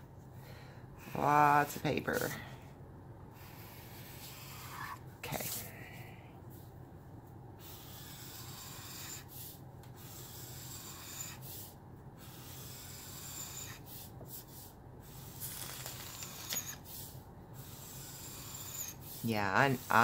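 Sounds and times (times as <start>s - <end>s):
marker scratching on paper: 3.5s - 5.0s, 7.6s - 20.0s.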